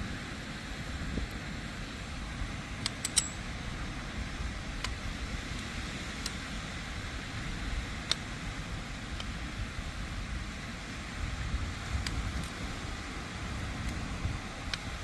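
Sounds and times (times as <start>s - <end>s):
sea: 0.0s - 15.0s
wind rumbling on microphone: 0.0s - 15.0s
sharp clicks: 2.8s - 3.4s.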